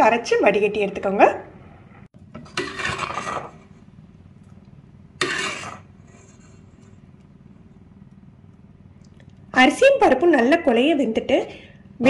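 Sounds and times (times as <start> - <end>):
low steady hum: 0.0 - 12.0
ladle scraping a pot: 2.4 - 3.9, 5.2 - 7.0.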